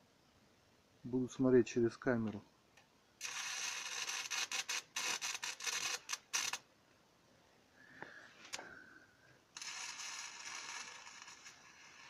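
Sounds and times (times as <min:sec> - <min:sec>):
welding arc crackling hiss: 0:03.2 - 0:06.6, 0:09.6 - 0:12.0.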